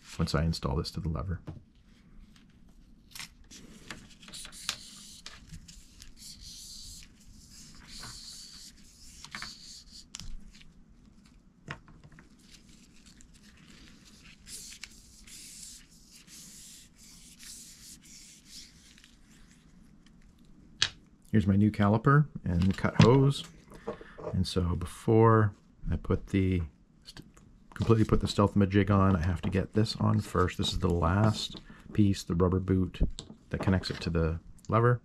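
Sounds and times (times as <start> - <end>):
gloved hands rubbing and rustling: 1.6 - 20.6, 27.7 - 32.4.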